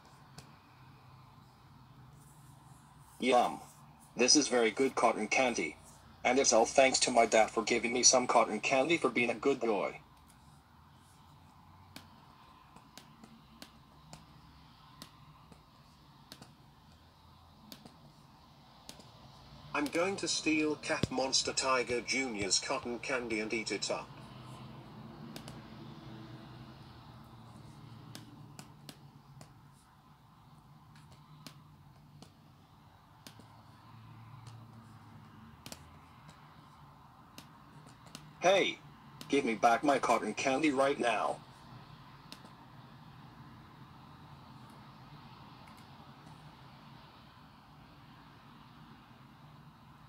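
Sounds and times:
laptop pointer clicks: 11.4s - 18.1s, 18.7s - 20.1s, 24.3s - 38.4s, 42.2s - 42.6s, 45.6s - 46.4s.

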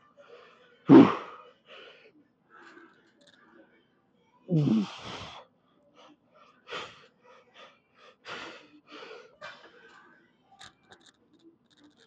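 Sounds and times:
man breathing hard: 0.9s - 2.0s, 4.5s - 5.4s.

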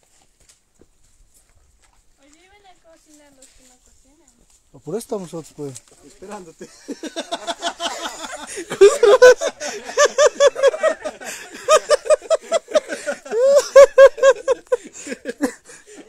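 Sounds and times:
person laughing hard: 6.6s - 16.0s.

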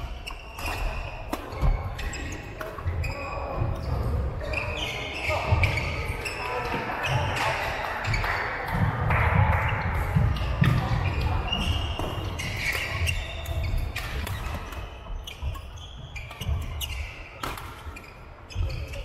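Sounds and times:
racket striking shuttlecock: 17.4s - 17.8s.

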